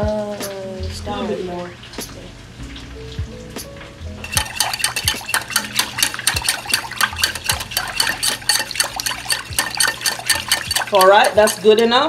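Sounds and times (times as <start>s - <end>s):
whisk clicking against glass bowl: 4.2s - 12.0s.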